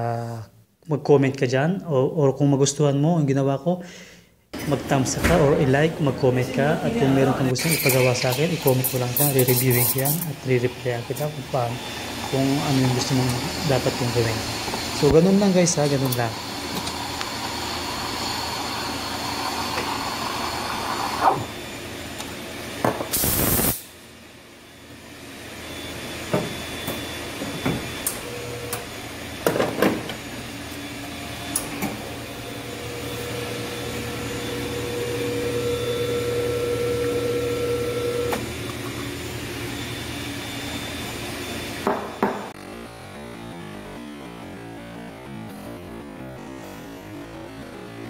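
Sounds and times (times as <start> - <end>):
espresso machine humming: 6.2 - 23.7, 24.7 - 42.6
steam wand hissing: 7.6 - 21.4, 23.1 - 23.9.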